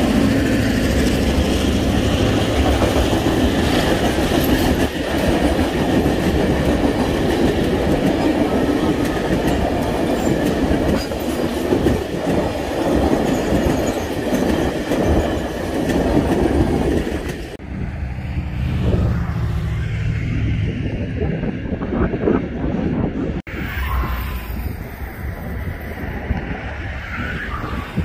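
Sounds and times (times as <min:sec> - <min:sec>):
train wheels rattling over rails: 0:00.0 - 0:17.6.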